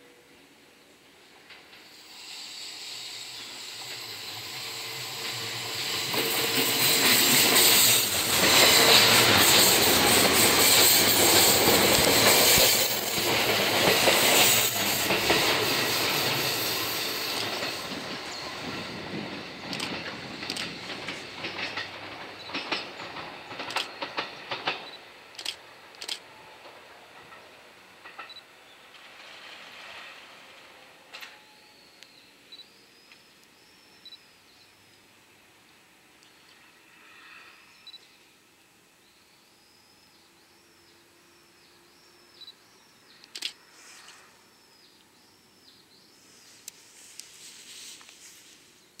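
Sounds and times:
train wheels clicking over rail joints: 1.4 - 29.4
sharp click: 23.6 - 23.9, 43.2 - 43.6.

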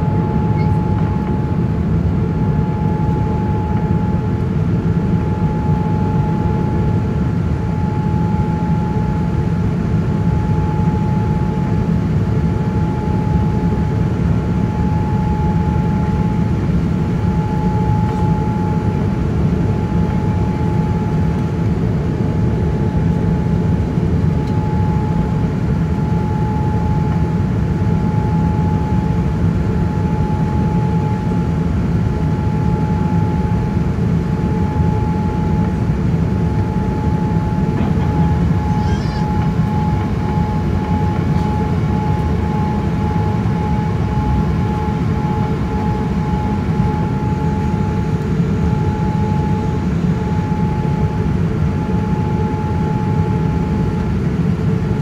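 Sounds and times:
constant high whine: 0.0 - 55.0
jet engine and airflow drone: 0.0 - 55.0.

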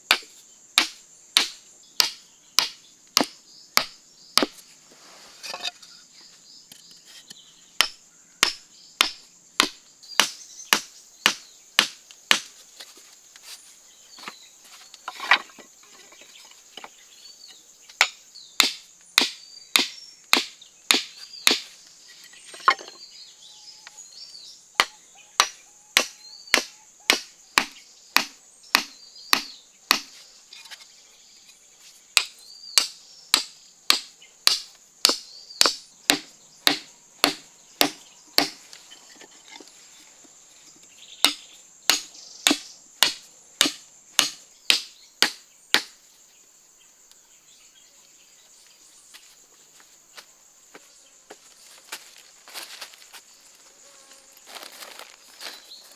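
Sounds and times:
hammer knocking wooden stakes: 0.1 - 4.6, 7.8 - 12.5, 18.0 - 21.6, 24.8 - 30.1, 32.2 - 38.6, 41.2 - 46.0.

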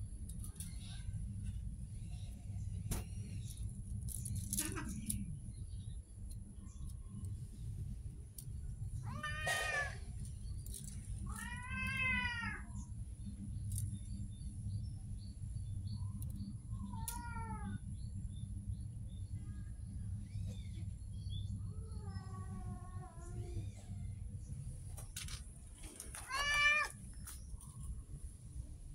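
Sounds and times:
steady low rumble: 0.0 - 28.9
cat meowing: 9.0 - 10.0, 11.3 - 12.7, 16.9 - 17.8, 26.2 - 27.0.

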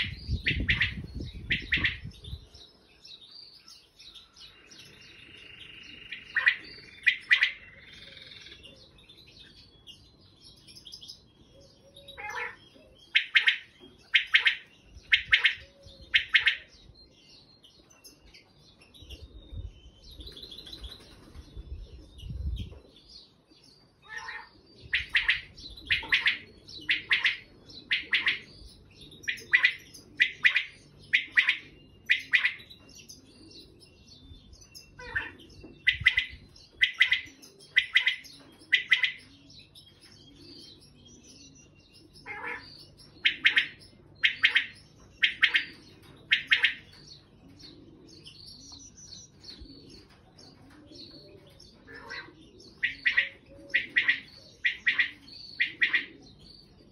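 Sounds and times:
quail calling: 0.0 - 2.1, 6.1 - 8.6, 12.0 - 16.7, 24.0 - 28.6, 29.2 - 32.7, 34.9 - 39.5, 42.2 - 47.0, 49.7 - 56.2.

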